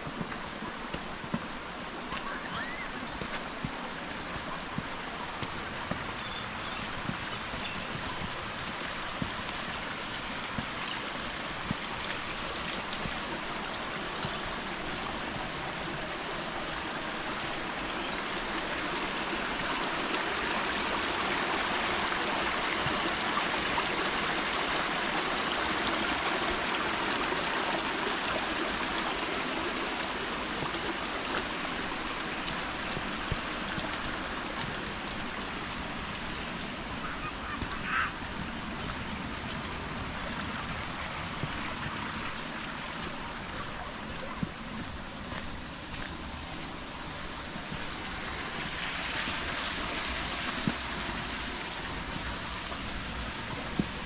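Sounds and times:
faint footsteps: 0.0 - 17.1, 30.0 - 54.0
small stream running: 0.0 - 54.0.

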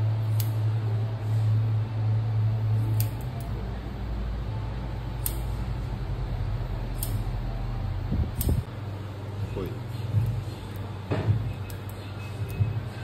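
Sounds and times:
steady low hum: 0.0 - 13.0
scissors snipping hair: 0.3 - 0.7, 2.8 - 3.6, 5.2 - 5.6, 6.9 - 7.4, 8.3 - 8.7, 9.6 - 12.7.

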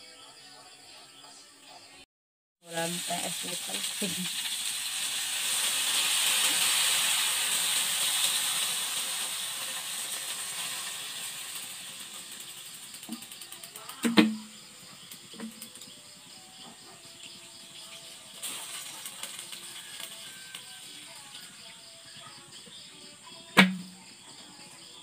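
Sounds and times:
hot wok hissing: 2.6 - 25.0
sharp knock: 14.0 - 14.5, 23.6 - 24.0.

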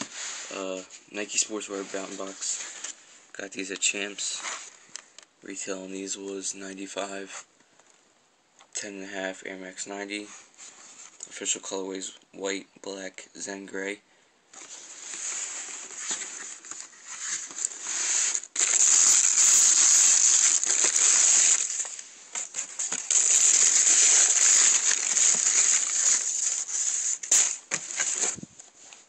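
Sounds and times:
tissue paper crinkling: 14.6 - 29.0.

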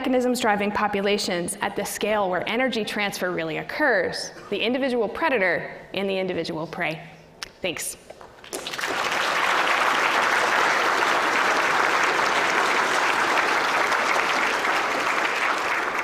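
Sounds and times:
large audience applauding: 8.4 - 16.0.

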